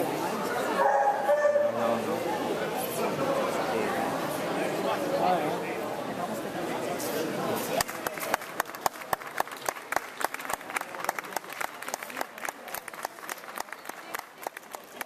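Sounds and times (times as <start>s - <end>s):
scattered applause: 7.6s - 15.0s.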